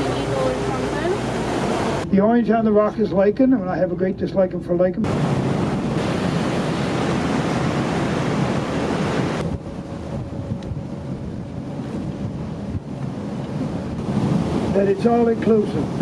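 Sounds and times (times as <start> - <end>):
water washing past boat: 0.0 - 2.1, 5.0 - 16.0
wind rushing over microphone: 5.0 - 16.0.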